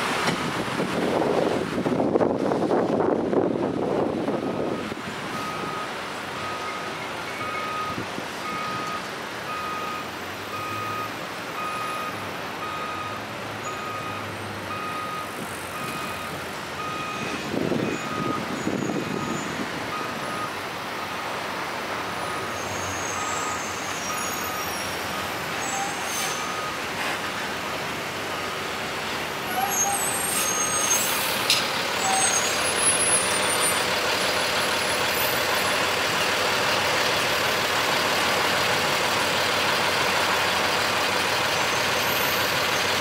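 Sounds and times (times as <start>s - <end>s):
engine rumble: 0.0s - 43.0s
idling city traffic: 0.0s - 43.0s
truck reversing alarm beeping: 3.6s - 21.1s, 22.2s - 26.9s, 27.7s - 28.8s
high brake squeals: 12.8s - 20.5s, 22.2s - 26.8s, 29.4s - 33.9s, 41.6s - 43.0s.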